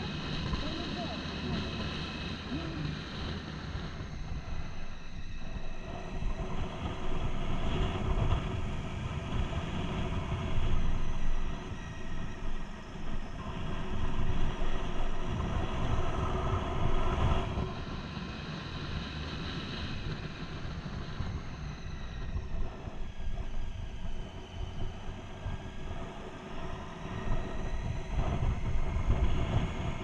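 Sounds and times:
motorcycle engine running: 0:00.0 - 0:11.5
wind rushing over microphone: 0:00.0 - 0:30.0.

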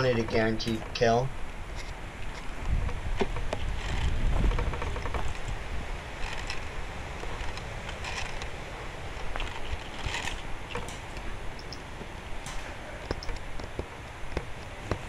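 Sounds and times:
microphone rumble: 0:00.0 - 0:07.5.

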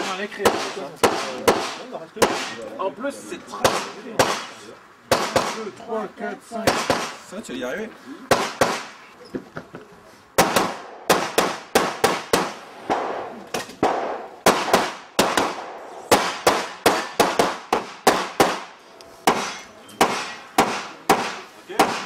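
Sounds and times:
rapid pistol shots: 0:00.0 - 0:02.6, 0:03.6 - 0:05.7, 0:08.3 - 0:08.9, 0:10.4 - 0:22.0.

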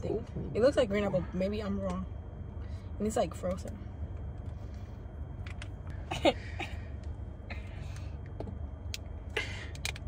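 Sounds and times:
low rumble inside car: 0:00.0 - 0:10.0.

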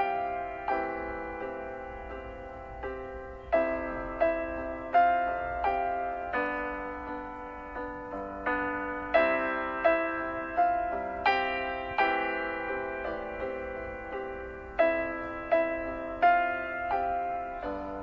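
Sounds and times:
slow gentle solo piano melody: 0:00.0 - 0:18.0.

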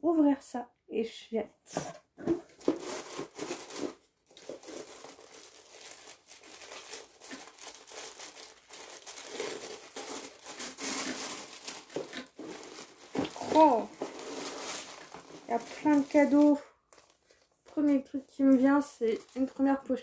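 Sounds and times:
tissue paper crinkling: 0:02.5 - 0:17.7.

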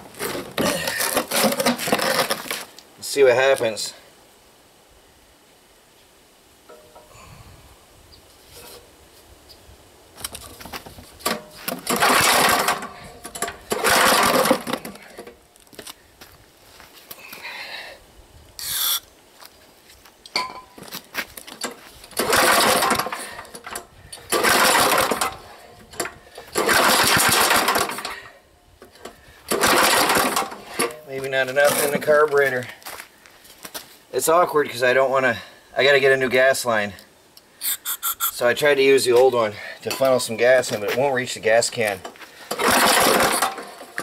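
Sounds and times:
generator engine pull-started: 0:11.2 - 0:15.3, 0:21.6 - 0:28.3, 0:29.0 - 0:31.0, 0:42.5 - 0:44.0.

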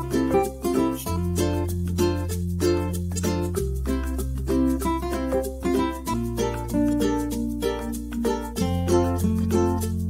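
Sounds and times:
plucked notes over held bass: 0:00.0 - 0:10.0.

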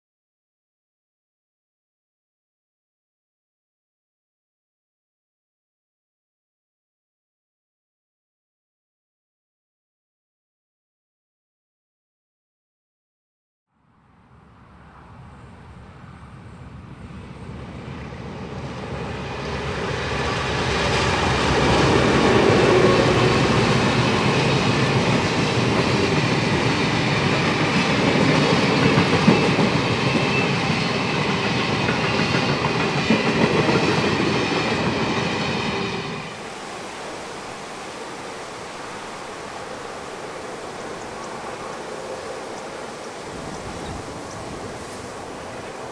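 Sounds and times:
diesel locomotives passing: 0:13.9 - 0:45.9
train wheels clattering on track: 0:17.8 - 0:36.4.

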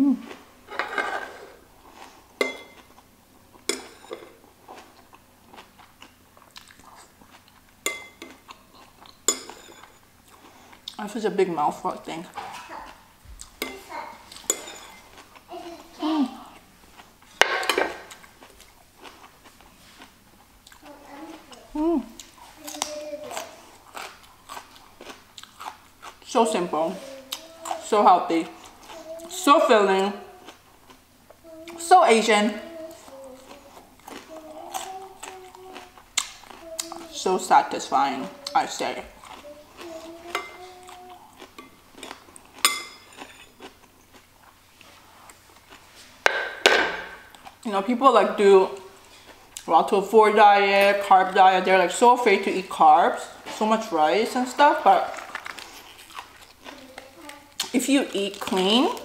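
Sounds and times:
metal spoon clinking on dish: 0:02.4 - 0:02.8, 0:07.8 - 0:08.3, 0:09.3 - 0:10.0, 0:14.5 - 0:15.0, 0:40.3 - 0:40.6, 0:42.6 - 0:43.4
metal spoon clinking on tableware: 0:02.4 - 0:02.8, 0:07.8 - 0:08.3, 0:09.3 - 0:10.0
person humming: 0:21.8 - 0:22.2.

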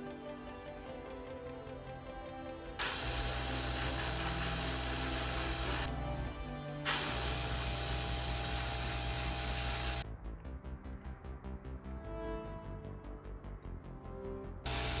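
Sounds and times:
airbrush spraying paint: 0:02.8 - 0:05.9, 0:06.9 - 0:10.0, 0:14.7 - 0:15.0.

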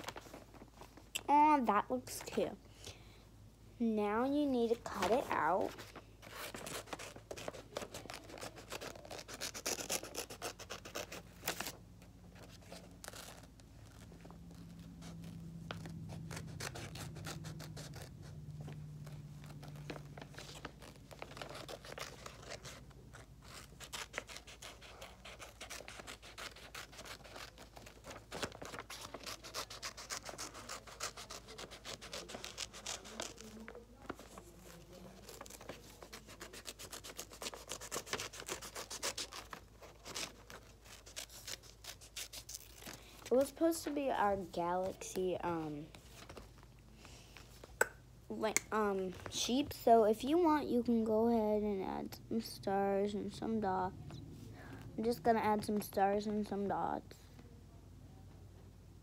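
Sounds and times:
paper rustling: 0:04.8 - 0:10.3, 0:12.4 - 0:44.0, 0:45.9 - 0:46.7
scissors snipping paper: 0:19.5 - 0:42.9.

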